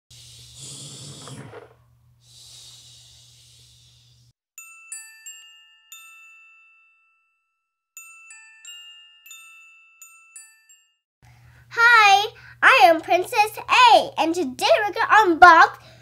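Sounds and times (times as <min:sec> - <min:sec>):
glockenspiel jingle: 0:04.6 - 0:11.1.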